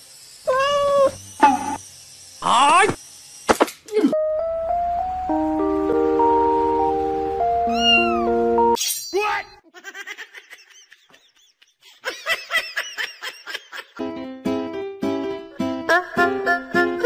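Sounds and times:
background music: 0:04.2 - 0:08.8, 0:14.0 - 0:17.0.

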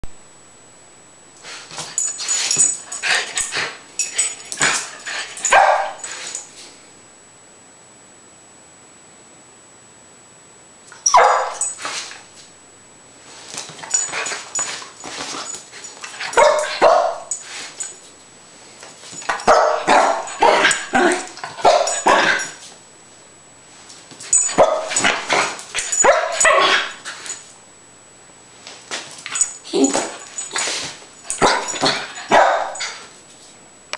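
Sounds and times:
dog barking and yipping: 0:02.9 - 0:06.3, 0:11.0 - 0:11.8, 0:16.1 - 0:17.4, 0:19.3 - 0:22.6, 0:24.3 - 0:27.3, 0:29.3 - 0:33.1.

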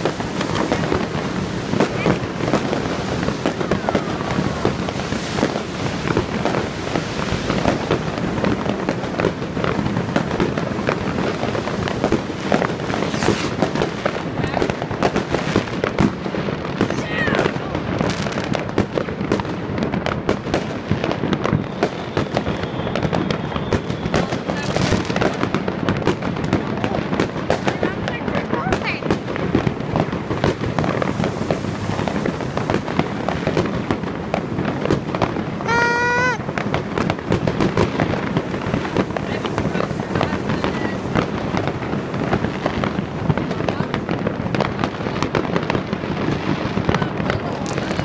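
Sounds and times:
firework whistle: 0:00.0 - 0:14.0, 0:21.2 - 0:25.2, 0:35.6 - 0:36.6
fireworks crackling and banging: 0:00.0 - 0:48.0.

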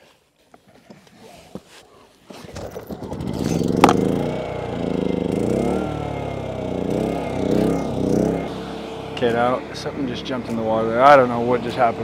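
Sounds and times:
starter clatter: 0:02.3 - 0:04.4
generator engine running: 0:02.8 - 0:12.0.

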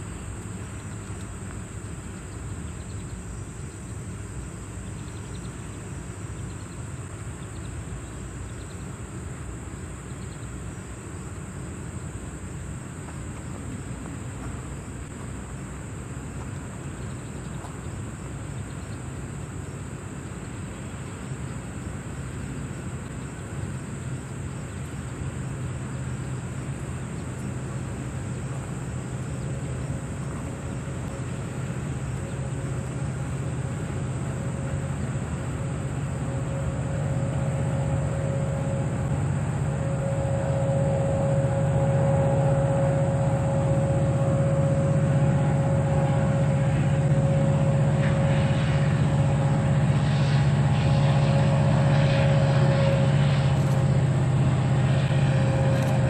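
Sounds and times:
diesel locomotive engine hum: 0:00.0 - 0:56.0
insects trilling: 0:00.0 - 0:56.0
steady whine: 0:00.0 - 0:56.0.

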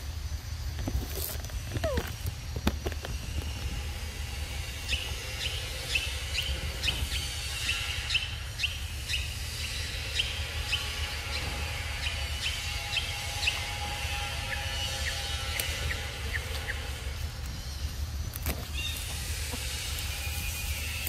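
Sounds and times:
low outdoor rumble: 0:00.0 - 0:21.0
bird chirping: 0:04.2 - 0:21.0.

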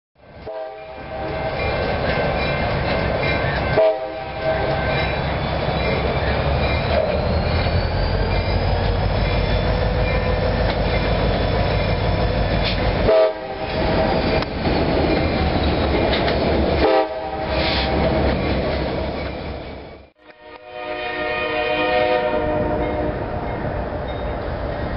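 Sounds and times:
low rumble of trains: 0:00.2 - 0:24.9
locomotive horns: 0:00.4 - 0:01.9, 0:03.6 - 0:05.2, 0:12.6 - 0:14.3, 0:16.8 - 0:18.2, 0:20.2 - 0:23.6.

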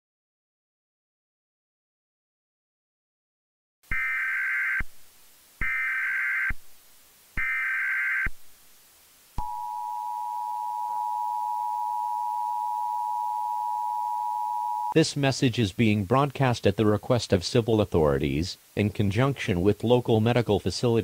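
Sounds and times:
two-tone attention signal: 0:09.4 - 0:15.0.

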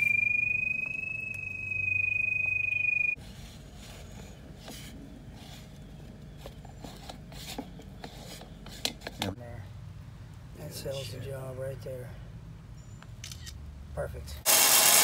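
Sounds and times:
low hum: 0:00.0 - 0:03.2
pipe locator high tone: 0:00.0 - 0:03.2.

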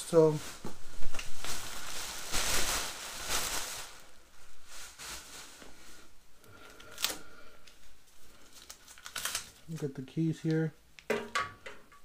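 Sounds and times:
plastic bag crinkling: 0:00.0 - 0:10.7.

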